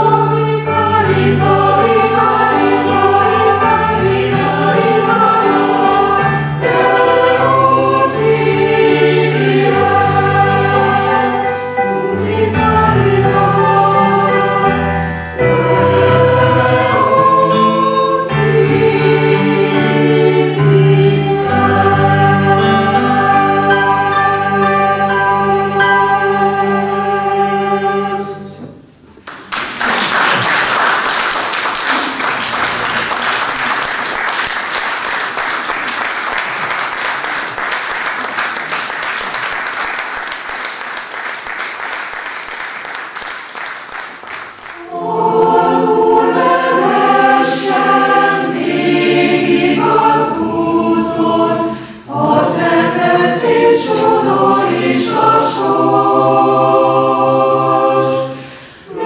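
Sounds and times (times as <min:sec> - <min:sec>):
choir singing in harmony: 0:00.0 - 0:28.9, 0:44.6 - 0:59.0
audience applauding: 0:29.2 - 0:45.0.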